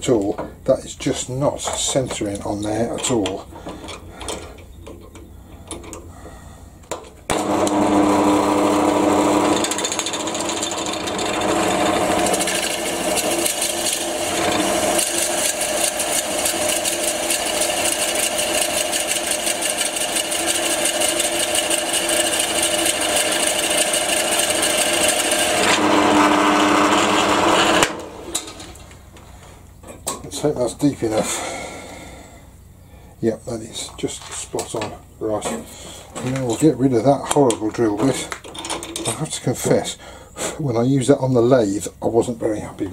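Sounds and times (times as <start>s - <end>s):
drill bit boring into wood: 7.3s - 28.0s
drill motor hum: 7.3s - 28.9s.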